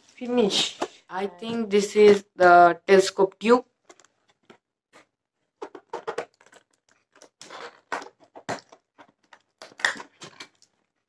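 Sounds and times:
cardboard packaging rustling: 3.8s - 11.0s.

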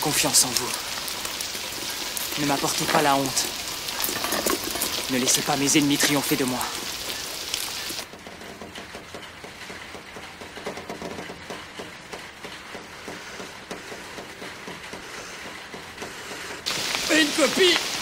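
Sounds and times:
heavy rain hiss: 0.0s - 8.1s, 15.0s - 18.0s
faint rain patter: 0.0s - 18.0s.

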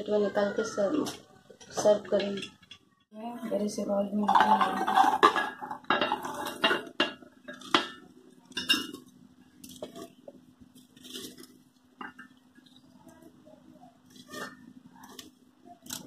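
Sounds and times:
popcorn rustling: 4.2s - 16.0s.

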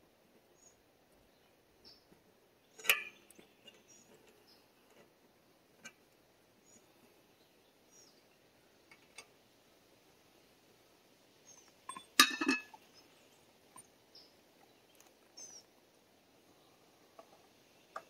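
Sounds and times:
birds chirping: 0.6s - 5.0s, 6.6s - 9.0s, 11.4s - 18.0s
metal pipe fittings clanking: 2.8s - 3.8s, 11.9s - 12.8s.

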